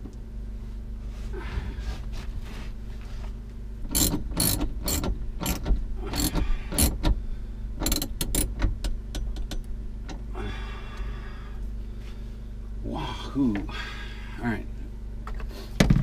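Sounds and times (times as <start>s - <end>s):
steady low hum: 0.0s - 16.0s
ratchet wrench clicking: 3.9s - 7.0s, 7.8s - 9.7s.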